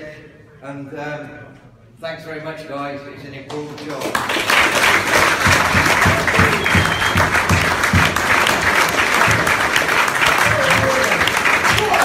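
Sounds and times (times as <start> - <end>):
hands clapping close by: 3.5 - 12.0
crowd applauding: 4.0 - 12.0.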